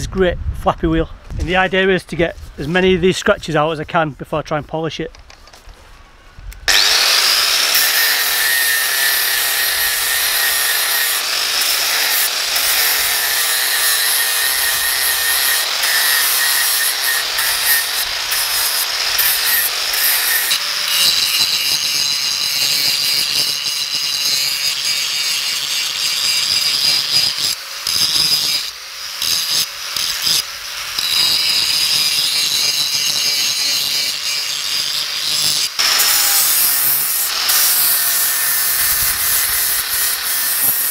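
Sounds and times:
angle grinder grinding steel: 0:06.7 - 0:40.9.

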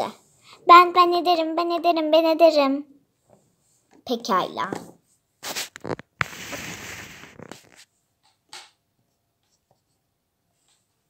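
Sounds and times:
plastic figurines rustling: 0:04.6 - 0:07.9
rubbing scraping: 0:05.4 - 0:07.9.

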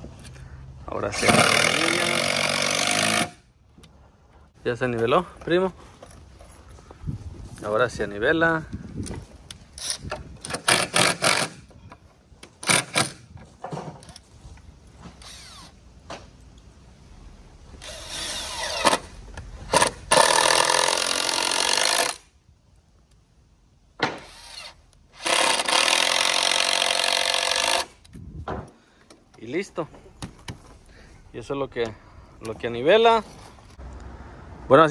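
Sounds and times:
power drill driving screws into wood: 0:01.2 - 0:03.4, 0:09.8 - 0:11.7, 0:12.6 - 0:13.3, 0:15.0 - 0:15.8, 0:17.8 - 0:22.3, 0:24.0 - 0:28.1.

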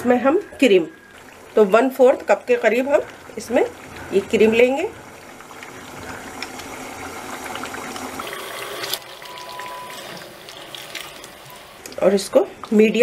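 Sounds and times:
sauce sizzling and bubbling: 0:00.0 - 0:13.0
cream pouring: 0:01.0 - 0:12.8.

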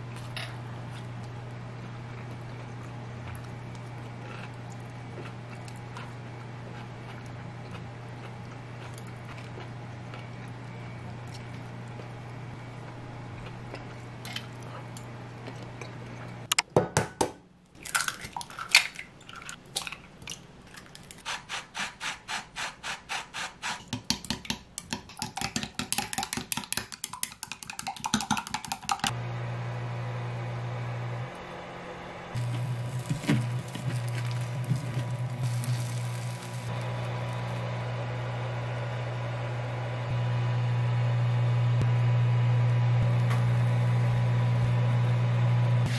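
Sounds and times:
eggs beaten in glass jug: 0:23.9 - 0:29.1
eggs cracking on glass jug: 0:24.0 - 0:29.1, 0:32.4 - 0:37.0
low steady hum: 0:29.1 - 0:45.9.

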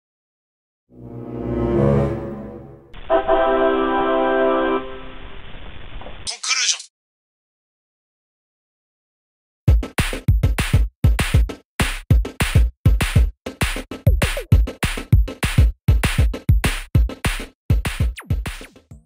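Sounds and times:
electronic music with drum-machine beat: 0:12.1 - 0:19.0.

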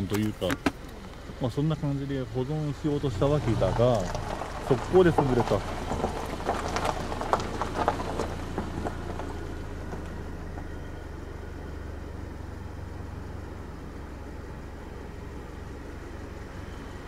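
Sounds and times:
footsteps crunching on rough ground: 0:03.2 - 0:10.7.

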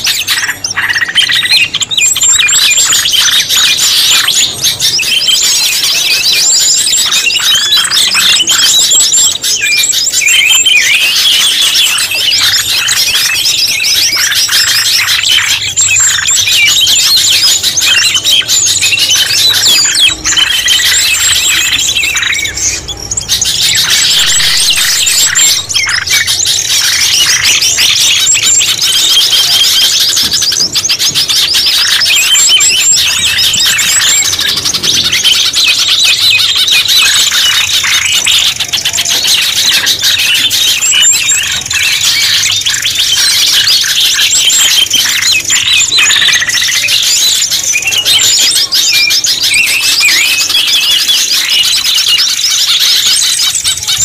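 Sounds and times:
small birds chirping and trilling: 0:00.0 - 0:54.0
steady high tone: 0:10.3 - 0:30.2.

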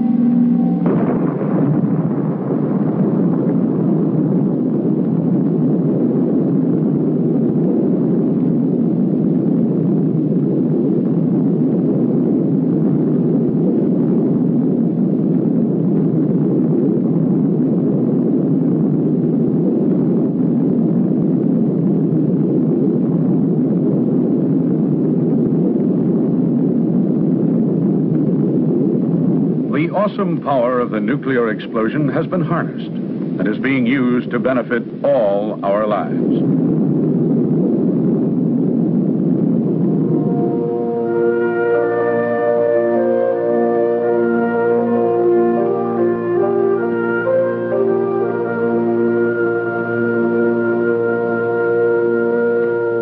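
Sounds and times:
explosion blast: 0:00.0 - 0:04.8
low rumble: 0:00.0 - 0:53.0.

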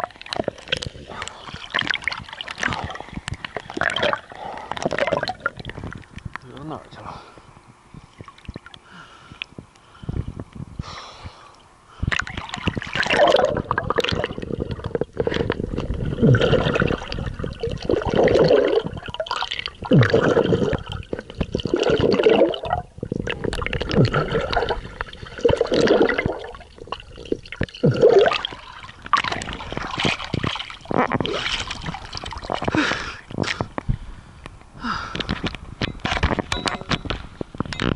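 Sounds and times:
water splashing: 0:00.0 - 0:06.6, 0:12.0 - 0:33.6
underwater swishing and gurgling: 0:00.0 - 0:37.9.

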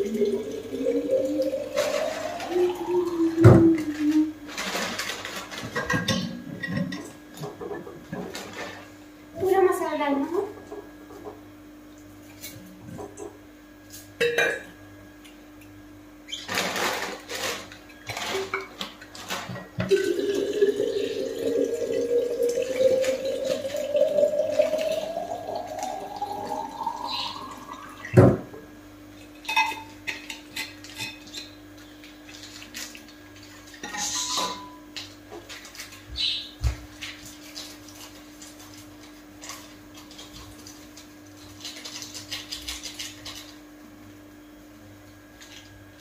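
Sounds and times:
liquid pouring into a container: 0:00.0 - 0:04.1, 0:19.9 - 0:28.4
steel utensils clattering: 0:33.8 - 0:34.8.

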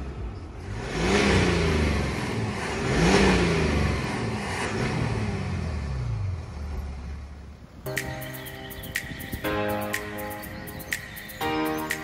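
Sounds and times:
diesel engine revving: 0:00.0 - 0:07.6.

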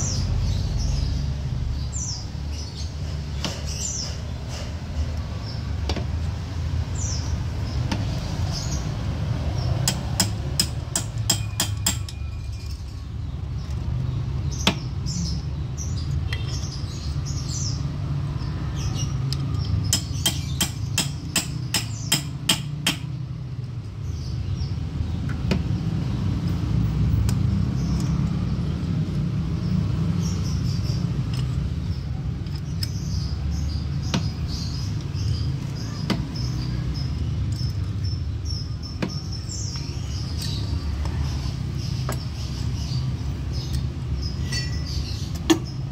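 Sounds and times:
hand tap metal clicks: 0:31.2 - 0:33.2.

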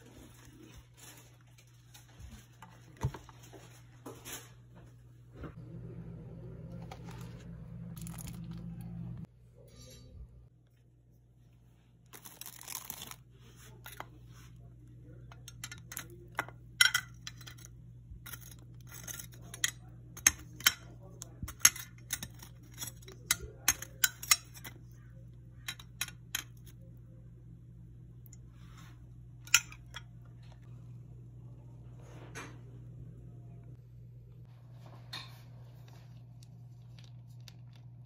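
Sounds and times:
steady low hum: 0:00.0 - 0:38.0
plastic wrapper crinkling: 0:07.9 - 0:08.6, 0:12.1 - 0:13.4.

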